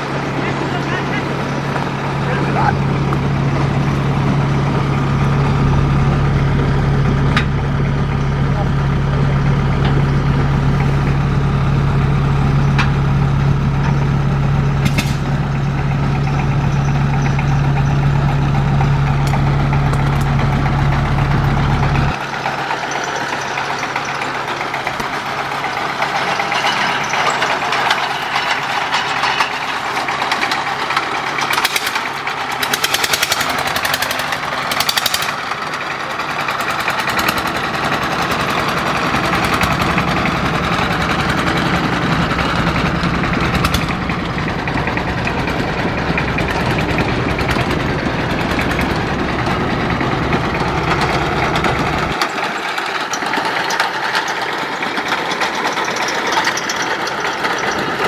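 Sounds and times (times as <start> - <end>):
boat engine running: 0.0 - 58.0
engine idling with deep hum: 0.0 - 58.0
propeller churning water: 18.2 - 58.0.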